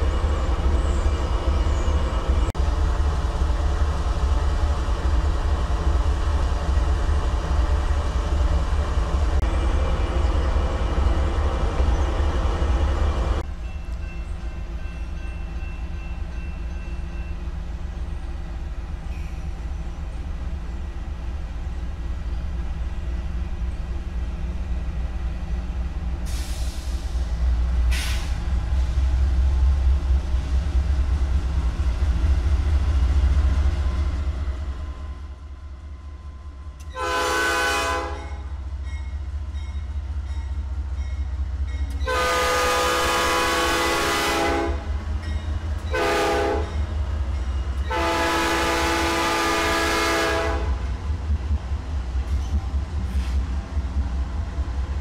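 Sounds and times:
diesel locomotives rumbling: 0:00.0 - 0:55.0
train air horn blasts: 0:36.9 - 0:38.4, 0:42.0 - 0:44.9, 0:45.9 - 0:46.8, 0:47.9 - 0:50.8.

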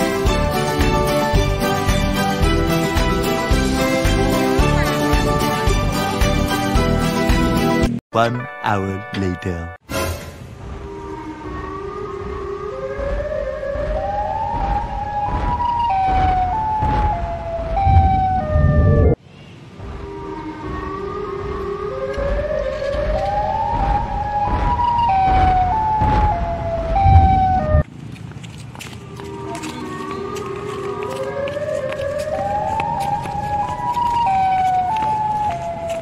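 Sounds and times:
siren wail: 0:10.7 - 0:19.2, 0:20.0 - 0:27.8, 0:29.0 - 0:36.0.

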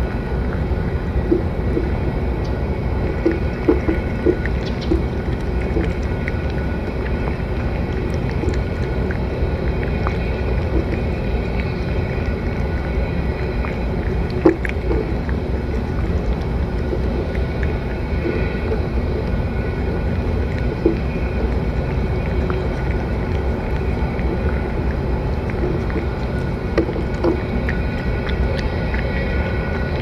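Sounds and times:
cat chewing and licking: 0:00.0 - 0:30.0
steady low rumble: 0:00.0 - 0:30.0.

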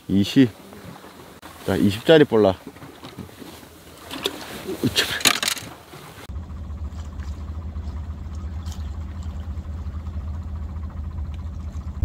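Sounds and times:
low pulsing engine drone: 0:06.2 - 0:12.0.

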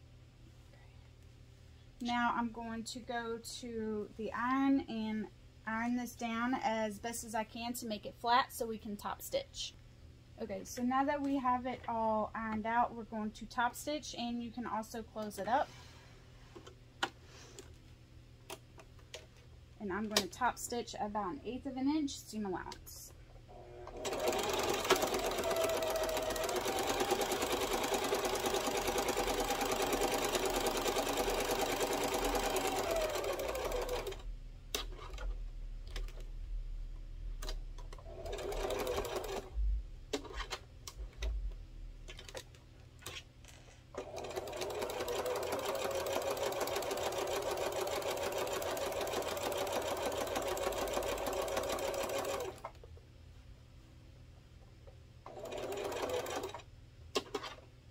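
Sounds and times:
sewing machine stitching: 0:23.5 - 0:34.2, 0:37.4 - 0:39.5, 0:44.0 - 0:52.7, 0:55.3 - 0:56.6.

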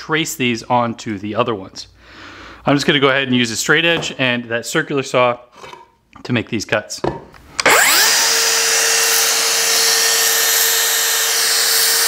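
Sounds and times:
circular saw cutting wood: 0:07.6 - 0:12.0.

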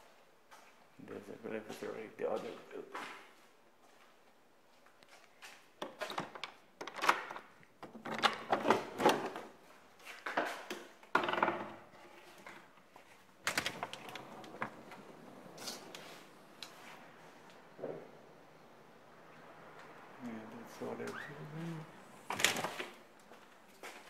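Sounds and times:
door latch rattling clicks: 0:06.2 - 0:08.8.

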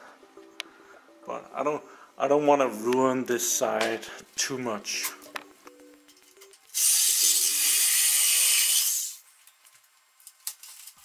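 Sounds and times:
power saw cutting through nail: 0:06.8 - 0:09.2.

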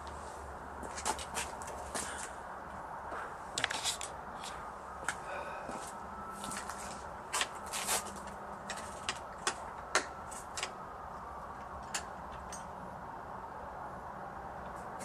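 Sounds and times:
faint steady hum: 0:00.0 - 0:15.0
clicks and knocks of handling: 0:08.2 - 0:10.8.

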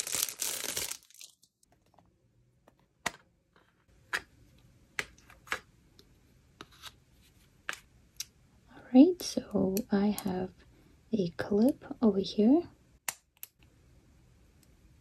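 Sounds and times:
plastic sleeve crinkling: 0:00.0 - 0:01.7.

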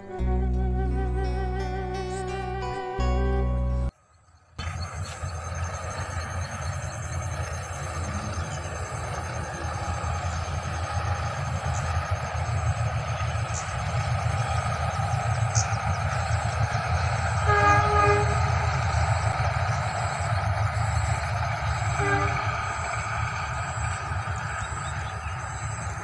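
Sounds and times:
low rumble: 0:00.0 - 0:03.9
distant train horn: 0:07.2 - 0:25.0.

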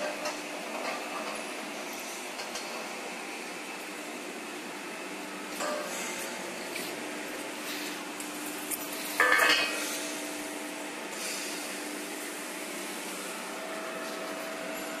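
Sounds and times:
steady hum: 0:00.0 - 0:15.0
metal tube clanking on concrete: 0:09.2 - 0:09.8.

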